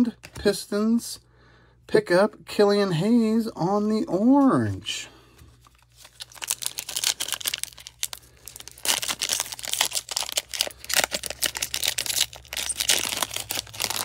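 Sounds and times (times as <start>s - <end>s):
foil wrapper tearing and crinkling: 5.7s - 14.0s.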